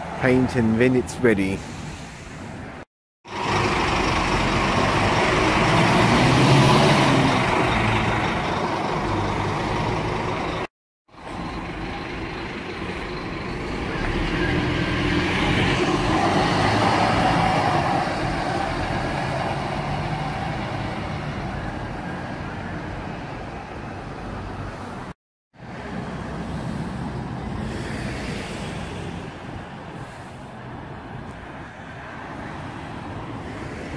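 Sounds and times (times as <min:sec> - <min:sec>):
diesel bus engine accelerating: 0:03.3 - 0:29.6.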